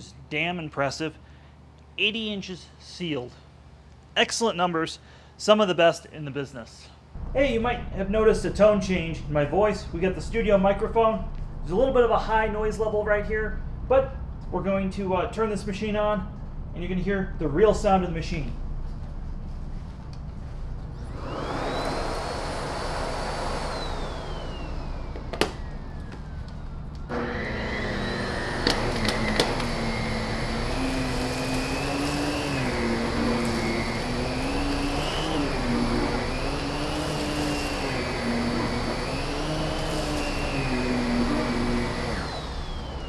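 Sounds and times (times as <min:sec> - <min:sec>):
vacuum floor head on carpet: 0:20.3 - 0:43.0
vacuum cleaner motor whine: 0:20.9 - 0:43.0.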